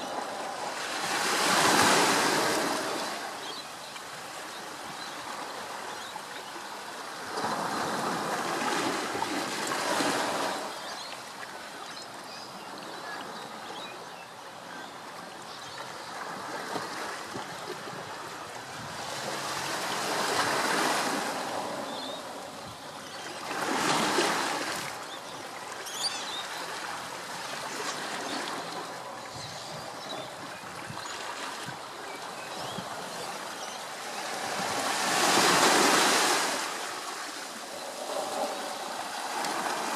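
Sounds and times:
surf washing in: 0.0 - 5.7, 16.4 - 25.2, 26.7 - 39.9.

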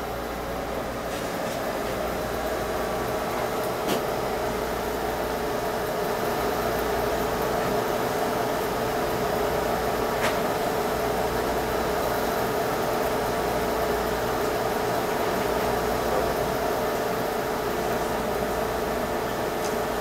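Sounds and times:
machine hum with steady tone: 0.0 - 20.0.

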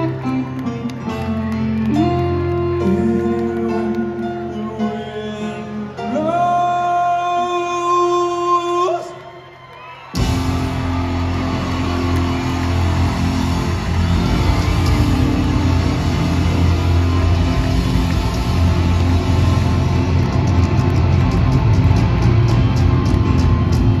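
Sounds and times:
live rock band playing: 0.0 - 6.1, 10.2 - 24.0
crowd cheering: 0.0 - 24.0.

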